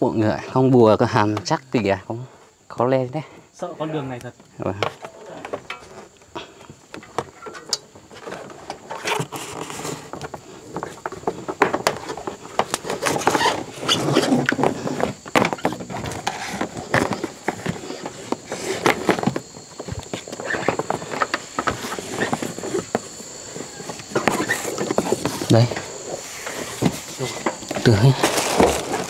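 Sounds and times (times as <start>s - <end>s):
footsteps on rough path: 9.2s - 29.0s.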